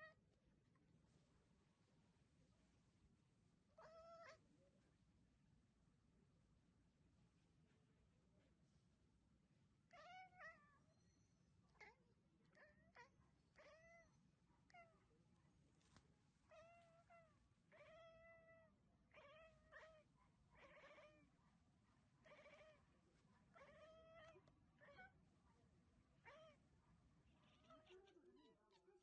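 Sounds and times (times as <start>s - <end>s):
cat meowing faintly: 3.8s - 4.5s, 9.9s - 10.9s, 11.7s - 15.1s, 16.5s - 21.3s, 23.5s - 25.2s, 26.2s - 26.7s, 27.4s - 29.0s.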